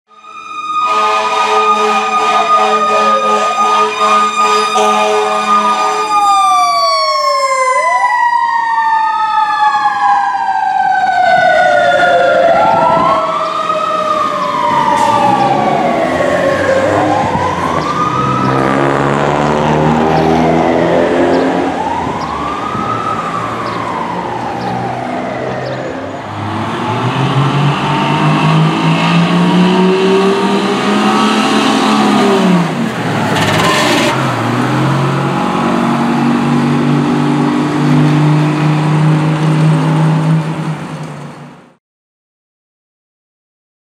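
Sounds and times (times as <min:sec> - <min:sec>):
fire truck siren wailing: 0:00.1 - 0:41.8
fire engine diesel revving: 0:11.9 - 0:41.1.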